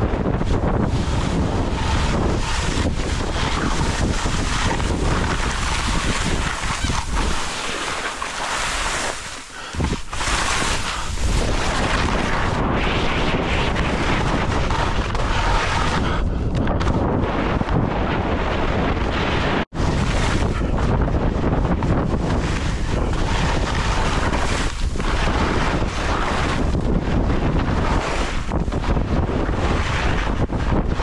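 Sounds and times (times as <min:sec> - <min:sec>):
wind buffeting microphone: 0:00.0 - 0:31.0
skis hissing and scraping on snow: 0:00.4 - 0:16.2, 0:22.3 - 0:26.8, 0:27.8 - 0:30.2.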